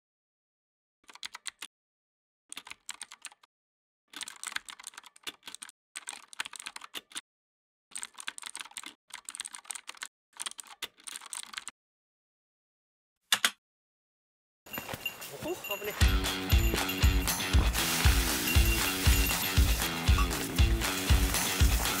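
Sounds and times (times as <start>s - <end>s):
keyboard typing: 1.1s - 1.7s, 2.5s - 3.5s, 4.1s - 7.2s, 7.9s - 11.7s, 16.3s - 22.0s.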